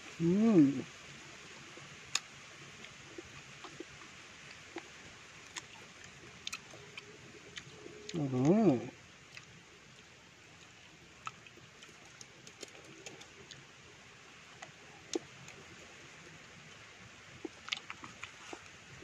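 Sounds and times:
faint steady hiss: 0:00.0 - 0:19.0
mouth clicks and smacks chewing: 0:02.1 - 0:07.9, 0:09.3 - 0:13.7, 0:17.4 - 0:18.8.

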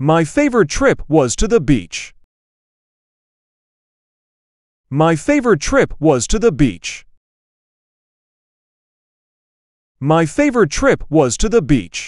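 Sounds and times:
synthesized voice: 0:04.9 - 0:07.0.

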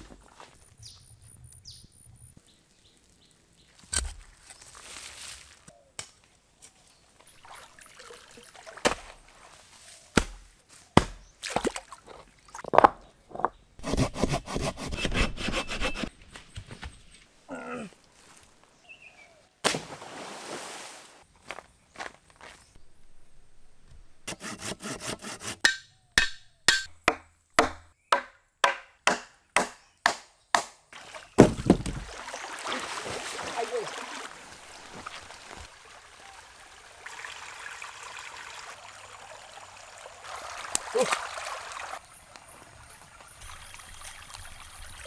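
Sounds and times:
water splashing and trickling: 0:02.4 - 0:05.7, 0:07.0 - 0:10.2, 0:11.4 - 0:12.8, 0:19.8 - 0:21.3, 0:30.9 - 0:45.0
wood being chopped: 0:10.1 - 0:11.6, 0:25.6 - 0:30.8, 0:31.4 - 0:32.1.

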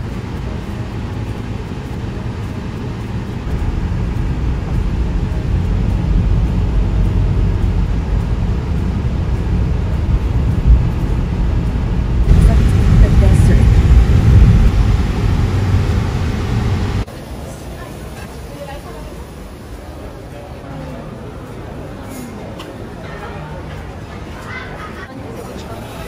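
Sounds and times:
car road and wind noise: 0:00.0 - 0:17.1.

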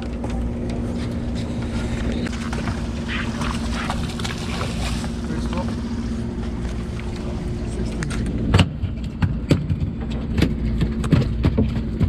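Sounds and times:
boat engine humming: 0:00.0 - 0:12.0
sharp knocks and thumps: 0:08.4 - 0:12.0.

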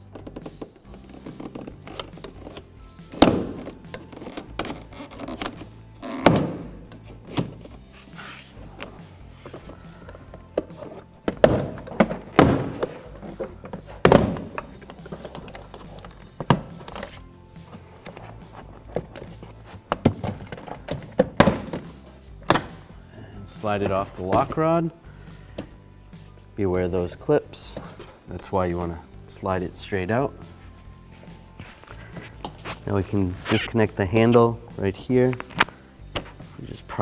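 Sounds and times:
background music: 0:00.0 - 0:37.0.

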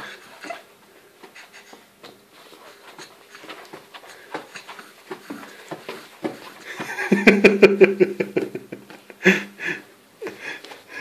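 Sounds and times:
baby kicking on padded mat: 0:02.0 - 0:07.0.

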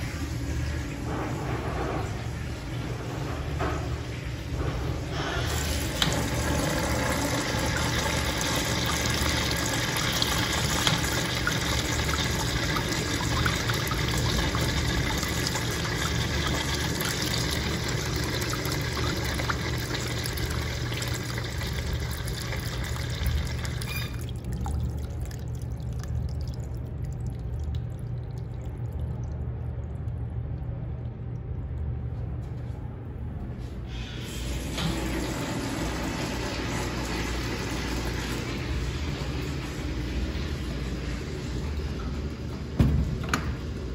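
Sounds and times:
urinal flushing: 0:00.0 - 0:30.7, 0:33.8 - 0:43.9
steady low hum: 0:00.0 - 0:43.9
water trickling as bowl drains: 0:05.1 - 0:31.6.

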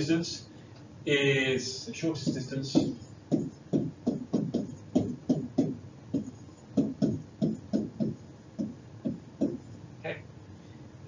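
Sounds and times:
pen knocking on a whiteboard: 0:02.2 - 0:09.7.

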